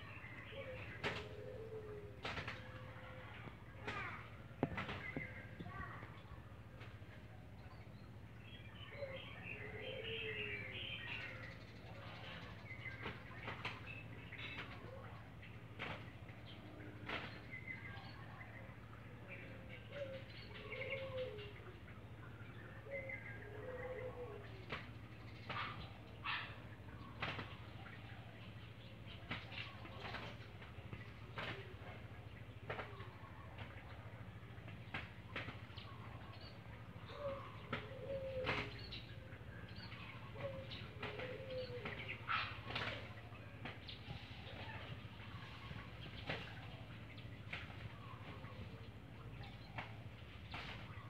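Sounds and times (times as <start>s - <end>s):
doves cooing: 0.0s - 51.0s
dove wing slaps: 1.0s - 1.4s, 2.2s - 2.9s, 27.1s - 27.6s, 29.2s - 31.8s, 32.6s - 33.8s, 34.7s - 35.8s, 37.6s - 38.9s, 40.4s - 43.9s, 47.4s - 48.4s, 49.7s - 51.0s.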